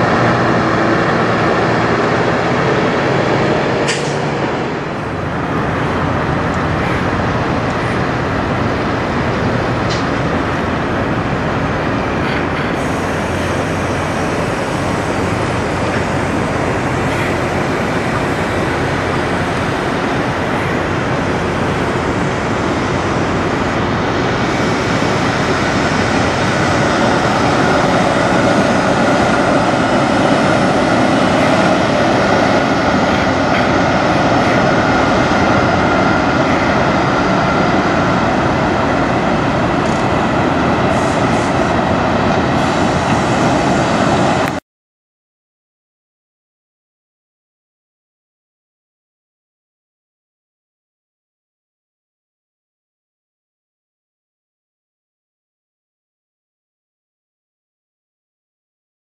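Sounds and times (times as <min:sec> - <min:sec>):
truck diesel engines rumbling: 0:00.0 - 0:44.6.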